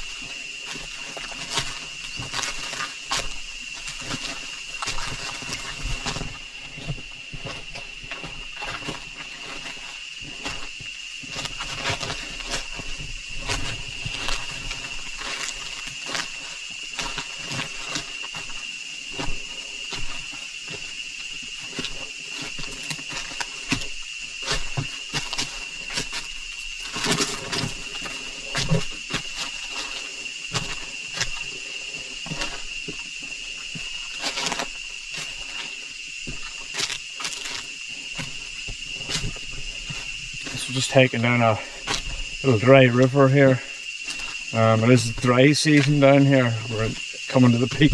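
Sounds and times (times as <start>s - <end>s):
footsteps crunching on dry leaves: 0.0s - 47.9s
high-pitched insect drone: 0.0s - 47.9s.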